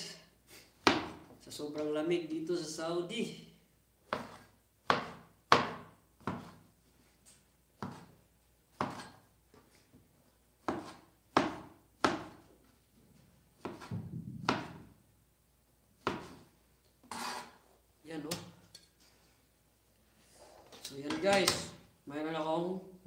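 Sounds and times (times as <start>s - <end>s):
knife chopping on wooden board: 0.8s - 1.3s, 4.1s - 6.6s, 7.8s - 8.2s, 8.8s - 9.2s, 10.6s - 12.4s, 13.6s - 14.8s, 16.0s - 16.5s.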